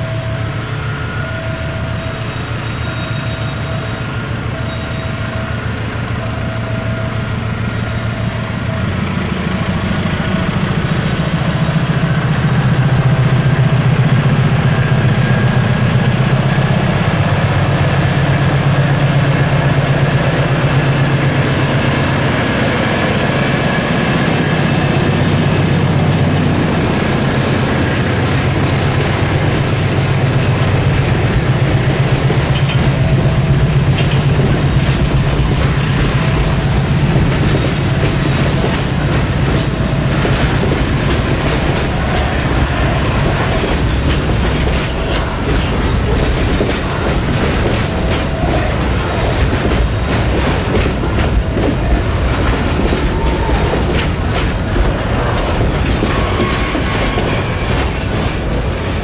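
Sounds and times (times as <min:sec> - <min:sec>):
locomotive engine droning: 0:00.0 - 0:59.0
train wheels clattering over rail joints: 0:28.0 - 0:59.0.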